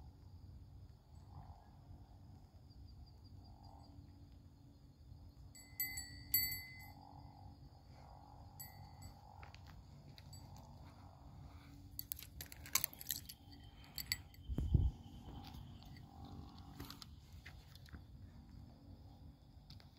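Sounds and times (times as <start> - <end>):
fishing rod bite bell ringing: 5.6 - 7.0, 8.6 - 9.2, 13.2 - 14.4.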